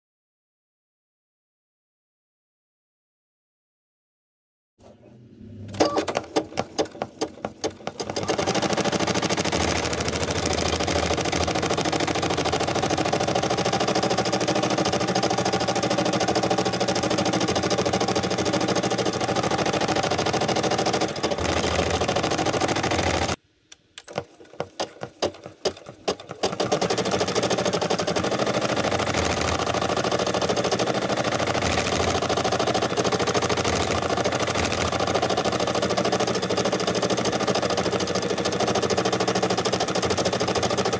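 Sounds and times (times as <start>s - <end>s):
embroidery machine stitching: 5.8s - 23.4s, 24.6s - 40.9s.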